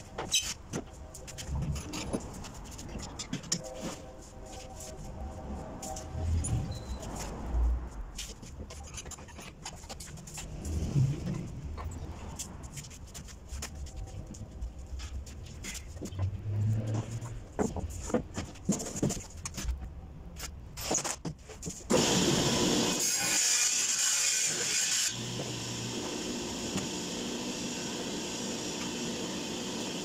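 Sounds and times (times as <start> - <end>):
table saw cutting plywood: 21.9 - 30.0
table saw running: 22.0 - 30.0.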